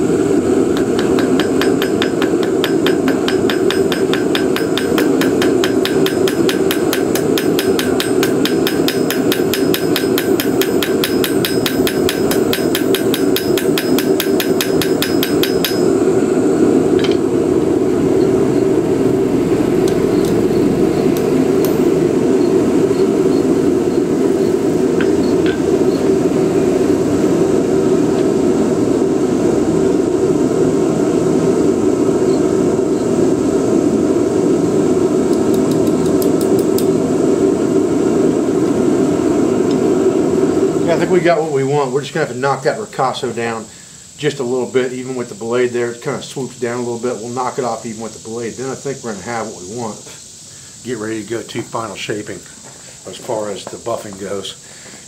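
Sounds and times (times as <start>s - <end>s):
loud steady drone: 0.0s - 42.4s
hammer striking steel on anvil: 0.7s - 16.0s, 17.0s - 17.3s, 19.8s - 22.0s, 25.0s - 26.0s.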